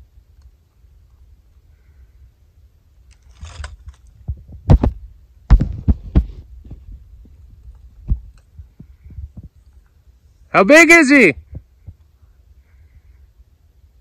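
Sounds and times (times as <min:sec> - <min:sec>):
brief rustle: 0:03.0 - 0:04.4
dull knocks and thumps: 0:04.2 - 0:09.6.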